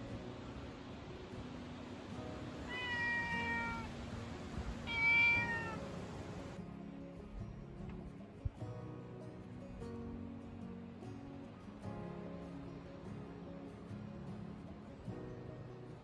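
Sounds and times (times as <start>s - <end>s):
cat meowing: 2.7s - 3.9s, 4.8s - 5.9s.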